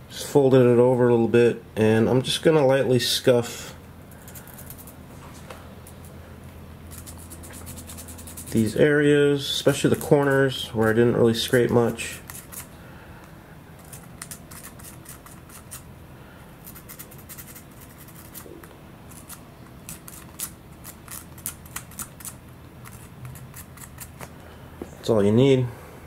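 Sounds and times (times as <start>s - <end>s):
sandpaper scratching plastic: 6.9s - 8.8s, 10.0s - 12.7s, 13.8s - 15.9s, 16.6s - 24.2s.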